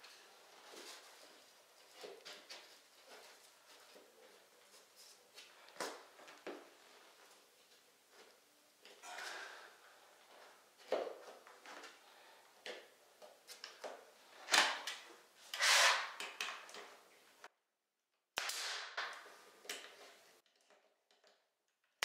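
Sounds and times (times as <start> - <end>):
board scraping: 15.5 - 16.2
sharp crack: 18.4 - 19.2.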